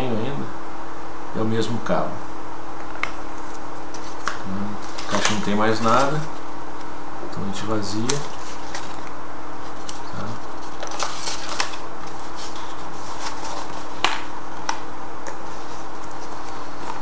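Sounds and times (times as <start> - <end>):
low hum and hiss: 0.0 - 17.0
cardboard box rustling: 8.1 - 9.1, 9.7 - 14.2.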